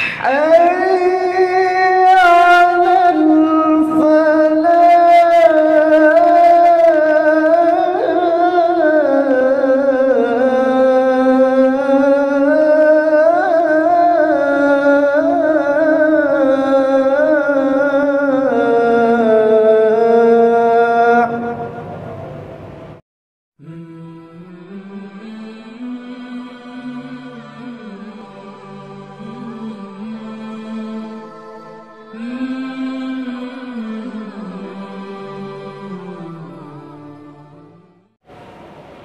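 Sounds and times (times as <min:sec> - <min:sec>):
man singing call to prayer: 0:00.0 - 0:22.0.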